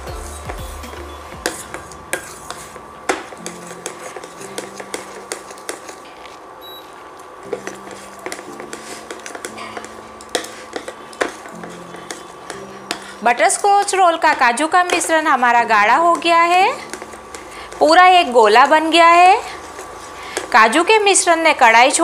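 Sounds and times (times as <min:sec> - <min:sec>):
spatula scraping steel pan: 0:01.4 - 0:06.2, 0:07.5 - 0:18.0.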